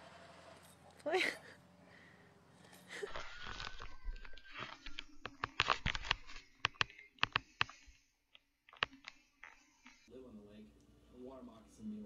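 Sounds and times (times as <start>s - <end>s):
phone handling rustling: 3.4s - 10.0s
sharp irregular clicks and taps: 4.5s - 10.0s.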